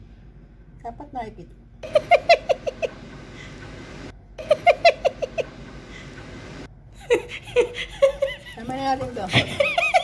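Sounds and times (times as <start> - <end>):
woman giggling: 1.8 - 2.9, 7.0 - 10.0.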